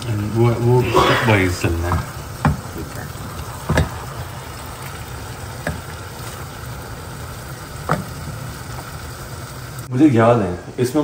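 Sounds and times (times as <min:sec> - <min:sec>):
chicken sizzling in a pan: 0:00.0 - 0:11.0
utensil knocking on pan: 0:01.8 - 0:02.9, 0:03.7 - 0:04.0.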